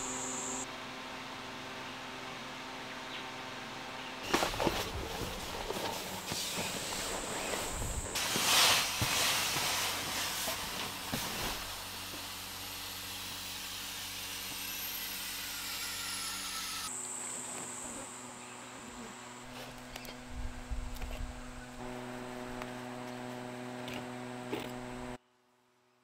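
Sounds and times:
steady hum with high whine: 0:00.0 - 0:15.4
tent fabric rustling: 0:04.3 - 0:11.9
air hissing from mattress: 0:06.2 - 0:12.6.

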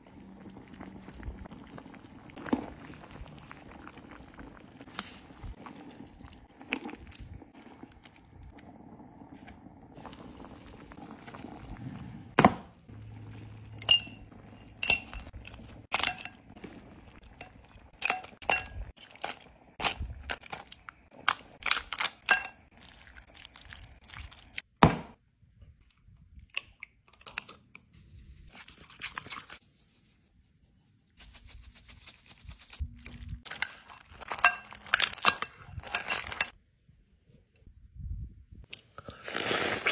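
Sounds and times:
metal ladle clinking on a pot: 0:13.8 - 0:15.3.

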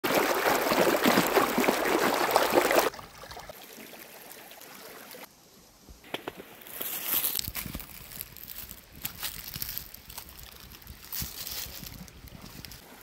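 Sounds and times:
stream rushing: 0:00.0 - 0:05.3
background hiss: 0:03.6 - 0:09.0.

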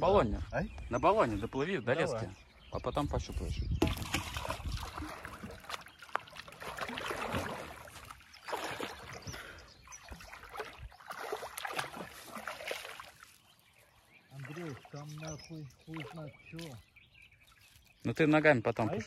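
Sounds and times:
river water splashing: 0:03.8 - 0:18.0.

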